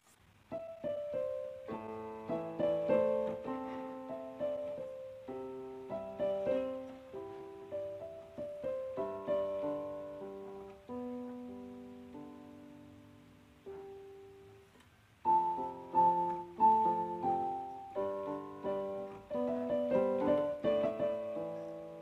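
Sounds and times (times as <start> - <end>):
piano music: 0.5 - 22.0.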